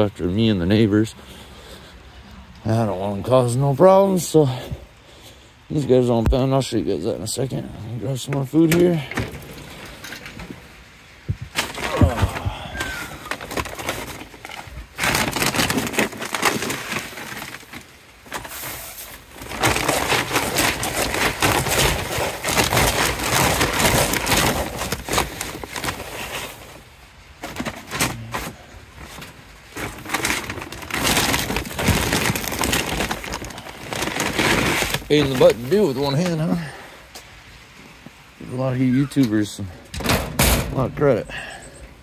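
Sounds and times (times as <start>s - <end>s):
plastic feed bag rustling: 8.2s - 36.8s.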